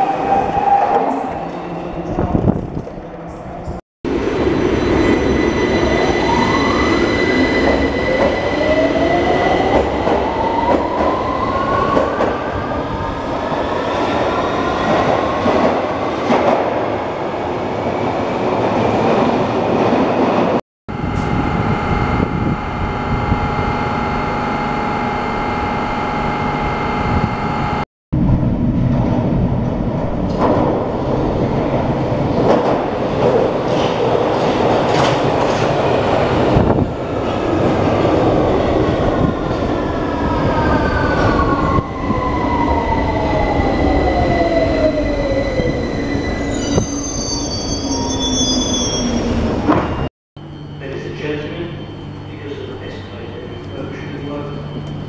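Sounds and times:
train braking whine: 20.9 - 27.8, 42.0 - 55.0
rumble of trains running: 48.9 - 55.0.

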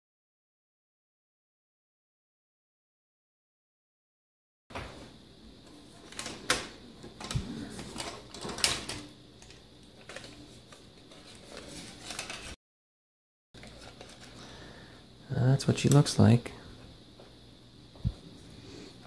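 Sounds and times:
rustling: 10.0 - 12.6.

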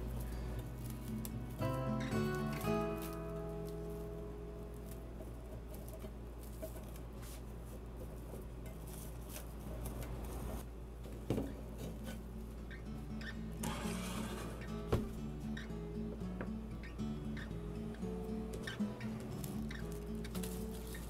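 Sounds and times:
cling film crinkling: 0.0 - 10.7, 18.2 - 21.0.

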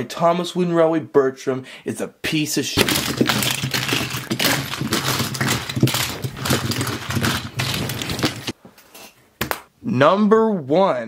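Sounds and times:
wooden toy trains clattering: 2.8 - 8.6.

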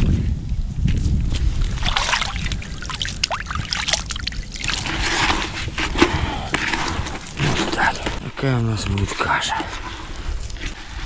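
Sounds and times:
water splashing and sloshing: 1.3 - 8.4
bucket scooping river water: 1.6 - 11.0.

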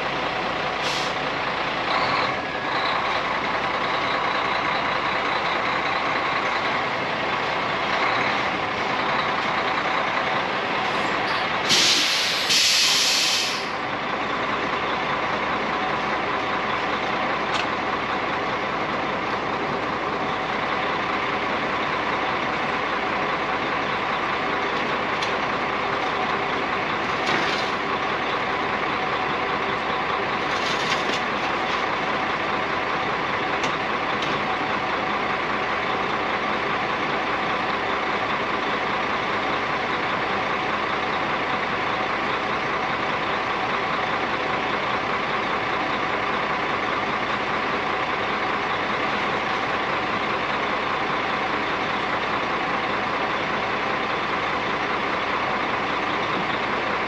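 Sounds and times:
truck engine running: 0.0 - 57.0
air brake hiss: 0.8 - 1.2, 11.6 - 13.8.

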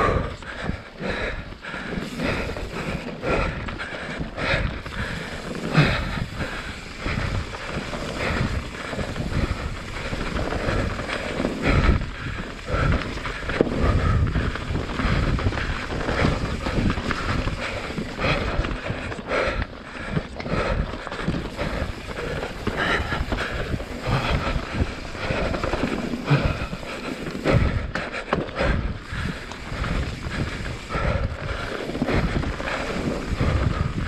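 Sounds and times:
bike chain and frame rattling: 0.0 - 34.0
bike tyres rolling over stones: 0.0 - 34.0
wind on microphone: 4.4 - 18.9, 28.6 - 34.0.

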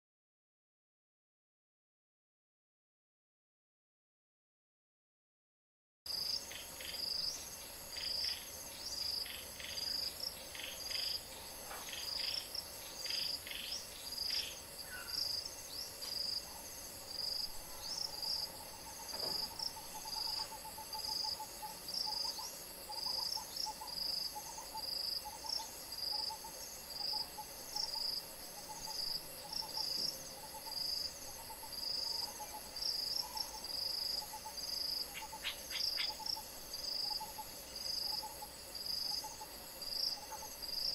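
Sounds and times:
insects chirping: 6.1 - 40.9
bird chirps: 6.5 - 15.9.

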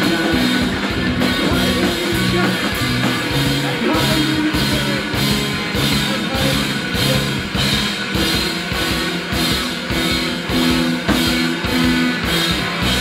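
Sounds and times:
rock band playing live: 0.0 - 13.0.

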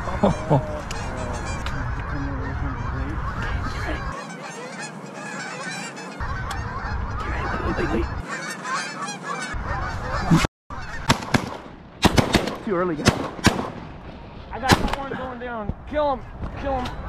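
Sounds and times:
flock of geese honking: 0.0 - 11.1.

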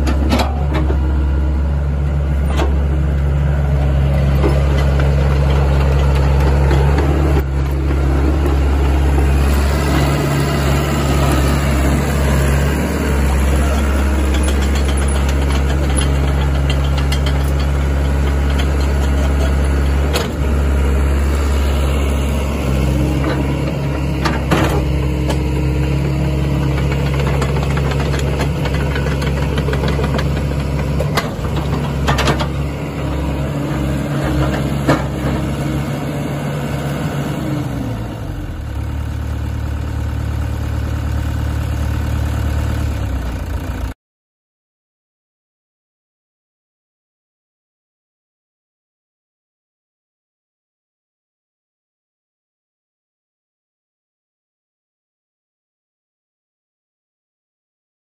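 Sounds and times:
excavator diesel engine running: 0.0 - 44.0.

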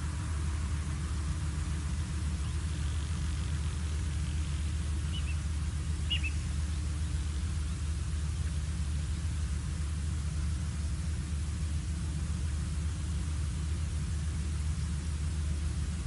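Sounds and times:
low rumble and hiss: 0.0 - 16.0
high bird chirps: 5.1 - 5.4, 6.0 - 6.5.

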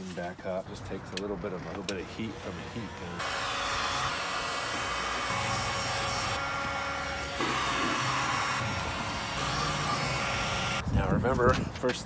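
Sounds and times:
heat gun blowing air: 2.4 - 10.8.

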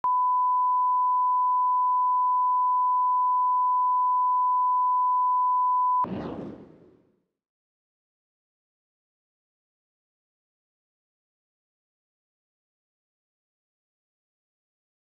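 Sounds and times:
burst of noise: 6.0 - 7.1.

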